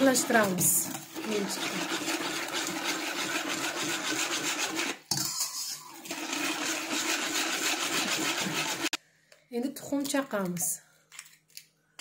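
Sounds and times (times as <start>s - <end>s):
whisk scraping against bowl: 0.0s - 9.0s.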